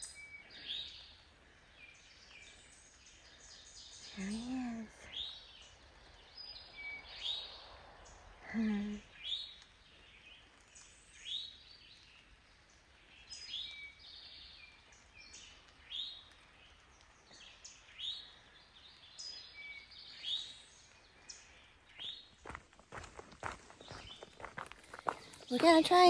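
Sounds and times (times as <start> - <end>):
songbirds chirping and whistling: 0.0 - 26.0
footsteps: 22.3 - 26.0.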